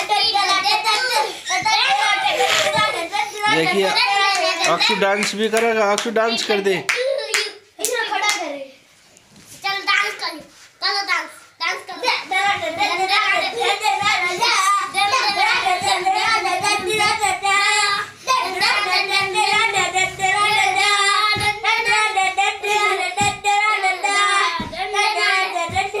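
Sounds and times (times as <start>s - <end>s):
dull bumps: 12.4s - 23.7s, 24.5s - 26.0s.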